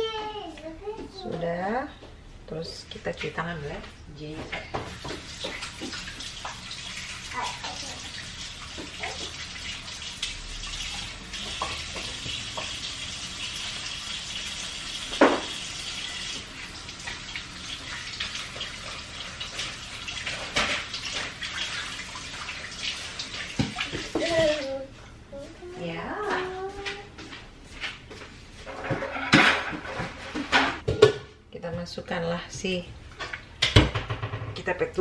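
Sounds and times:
water running from tap: 0:03.0 - 0:24.9
knocks and clatters: 0:33.2 - 0:34.7.

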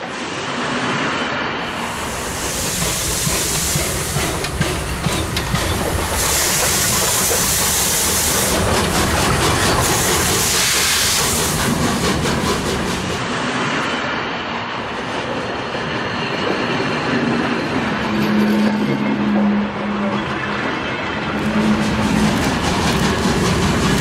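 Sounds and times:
rumble of train wheels: 0:00.0 - 0:24.0
steam hissing from locomotive: 0:01.6 - 0:13.8, 0:21.4 - 0:24.0.

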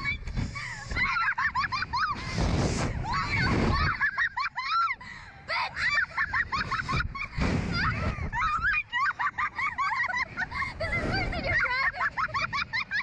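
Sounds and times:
wind rushing: 0:00.0 - 0:04.2, 0:06.4 - 0:08.9, 0:10.2 - 0:12.4
woman shrieking and laughing: 0:00.0 - 0:13.0.

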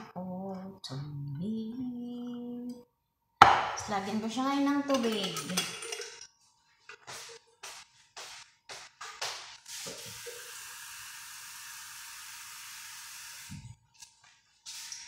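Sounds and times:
water running from a tap: 0:09.7 - 0:13.5.

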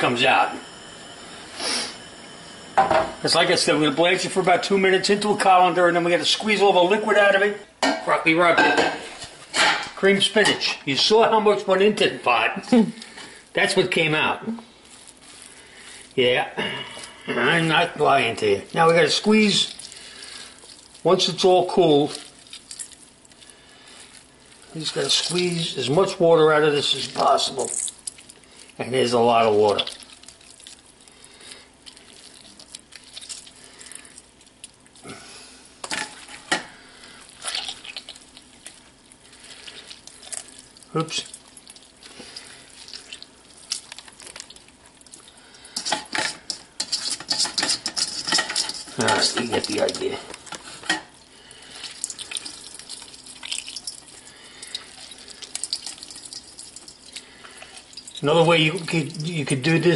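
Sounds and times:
wet squelching of squeezed spinach: 0:11.8 - 0:59.9
water dripping and splashing: 0:17.7 - 0:35.0, 0:37.2 - 0:50.6, 0:51.2 - 0:59.5.

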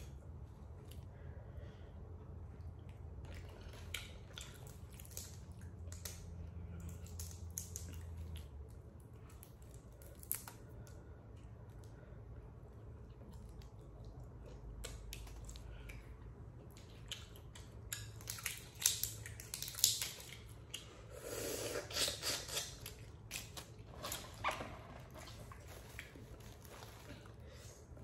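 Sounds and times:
chewing: 0:02.6 - 0:12.0, 0:12.8 - 0:27.9.

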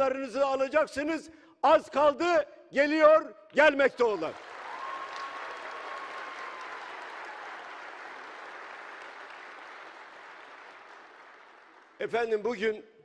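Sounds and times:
crowd applauding: 0:04.2 - 0:12.1.

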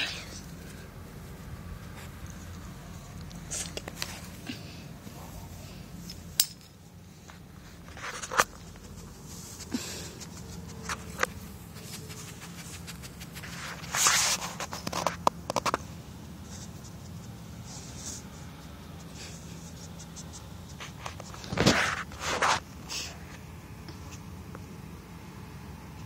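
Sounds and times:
rustling grass: 0:00.0 - 0:22.9
dog sniffing in grass: 0:08.6 - 0:14.6.

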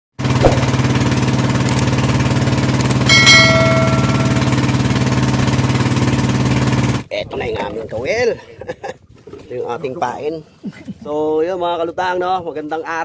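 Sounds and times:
boat engine running: 0:00.2 - 0:07.1
notification bell chime: 0:03.1 - 0:05.0.

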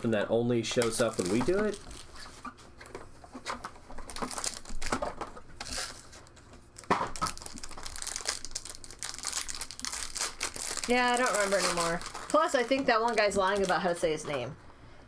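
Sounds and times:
foil wrapper crinkling: 0:00.8 - 0:02.4, 0:03.9 - 0:14.3.

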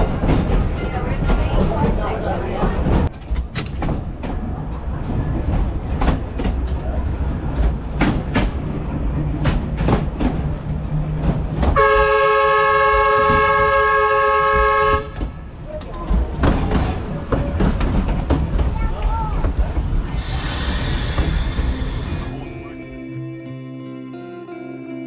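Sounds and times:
rail vehicle rumbling: 0:00.0 - 0:23.2
loud train horn chord: 0:11.8 - 0:15.2
wheels clicking over rail joints: 0:15.1 - 0:20.0.

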